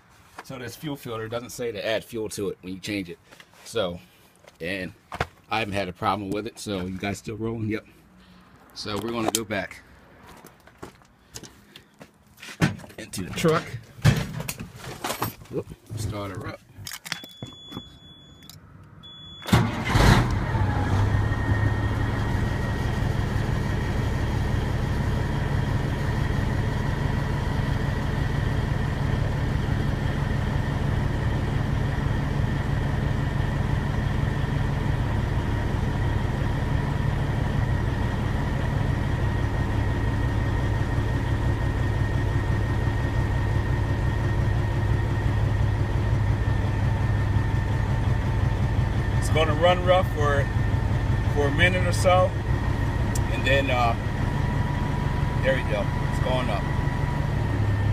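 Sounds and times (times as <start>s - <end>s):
high steady tone: 17.1s - 19.6s
diesel engine starting and idling: 17.3s - 57.9s.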